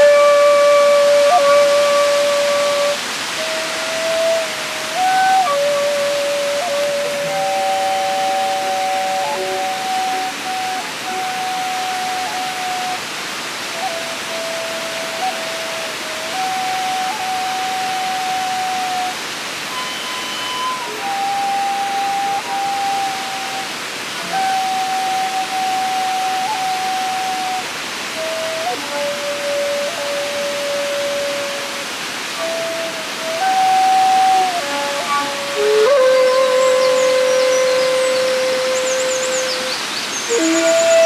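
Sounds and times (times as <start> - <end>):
bamboo flute duet: 0.0 - 41.0
waterfall rushing: 0.0 - 41.0.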